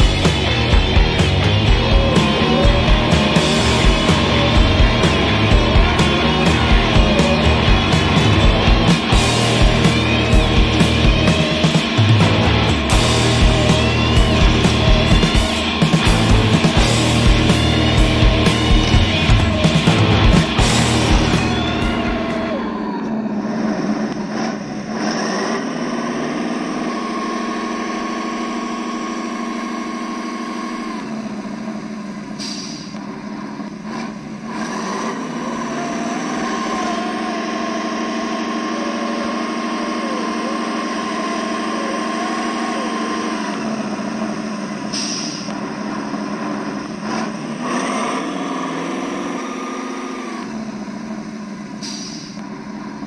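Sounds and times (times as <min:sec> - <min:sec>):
simulated truck engine from speaker: 0:00.0 - 0:53.0
short hisses: 0:32.3 - 0:33.0, 0:44.9 - 0:45.5, 0:51.8 - 0:52.4.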